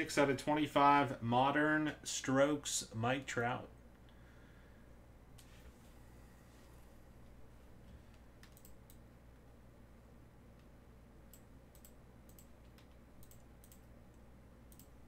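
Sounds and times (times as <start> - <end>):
steady low hum: 0.0 - 15.0
computer mouse clicking: 8.1 - 9.0, 11.3 - 15.0.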